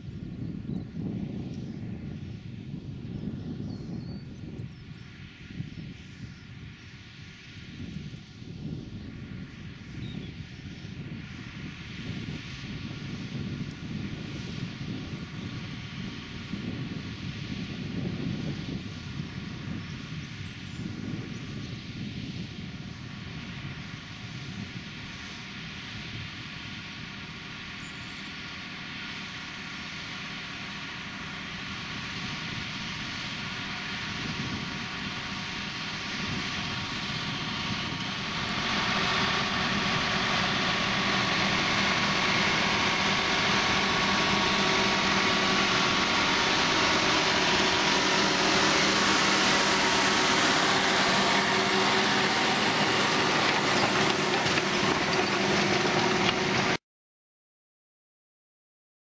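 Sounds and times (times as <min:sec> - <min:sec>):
tractor engine working under load: 0:10.5 - 0:56.8.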